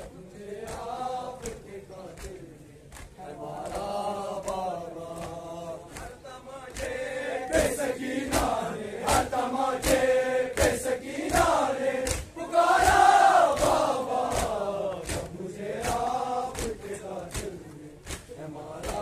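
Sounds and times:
crowd of men chanting: 0.0 - 19.0
rhythmic chest-beating slaps: 0.0 - 19.0.

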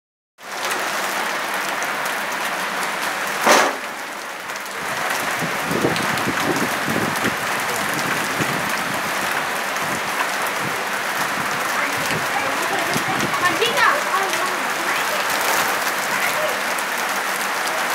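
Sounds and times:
flooded stream rushing: 0.4 - 17.9.

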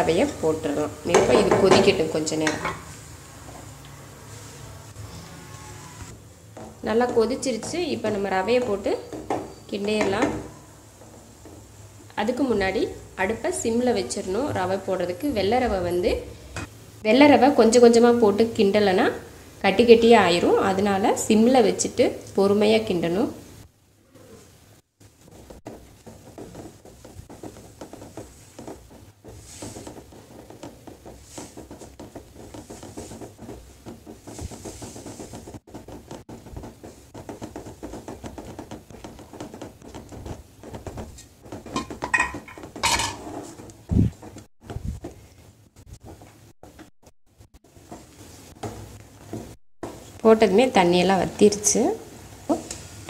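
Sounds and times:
wooden spatula stirring semolina: 0.0 - 23.7, 24.5 - 53.0
spatula scraping pan: 25.1 - 43.8
knock: 25.4 - 43.0.

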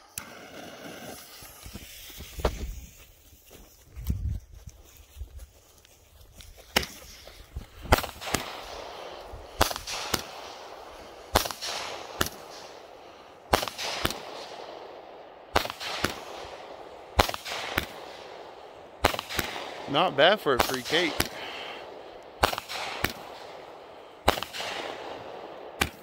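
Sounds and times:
firework cake firing shots: 7.8 - 12.9, 13.5 - 26.0.

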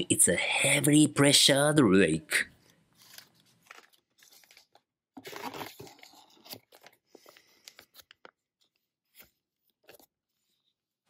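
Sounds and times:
plastic packaging crinkling: 2.6 - 9.2.

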